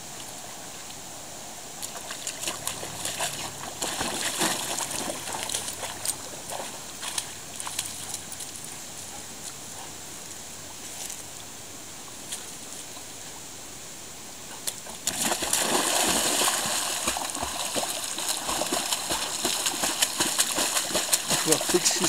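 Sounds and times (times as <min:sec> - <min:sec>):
dog splashing into water: 0:01.8 - 0:08.2, 0:14.8 - 0:22.0
water splashing and sloshing: 0:01.8 - 0:09.9, 0:14.6 - 0:22.0.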